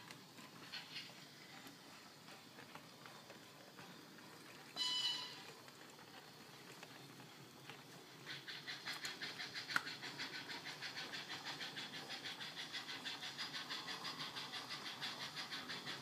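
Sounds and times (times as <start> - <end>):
model steam locomotive chuffing: 0.0 - 16.0.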